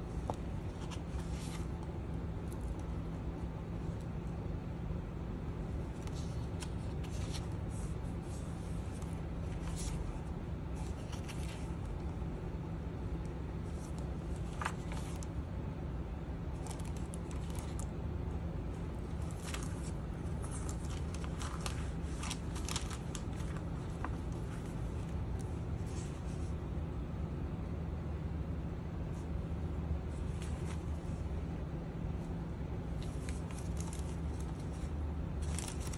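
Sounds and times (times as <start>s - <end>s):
steady low hum: 0.0s - 35.9s
paper pages rustling: 0.1s - 4.2s, 5.6s - 12.2s, 13.2s - 15.4s, 16.5s - 18.0s, 18.8s - 26.6s, 30.1s - 31.4s, 32.9s - 35.9s.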